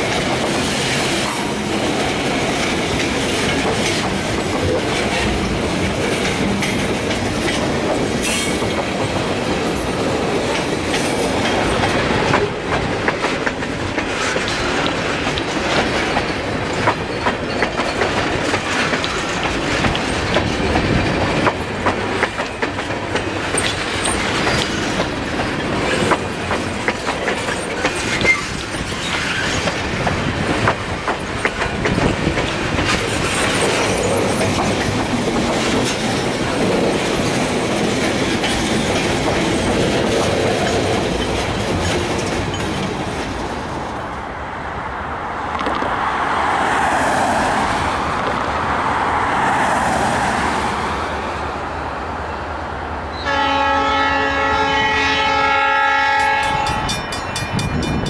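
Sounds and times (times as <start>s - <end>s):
clacks over rail joints: 0.0s - 43.8s, 45.5s - 46.0s
train wheels rumbling on rails: 0.0s - 58.0s.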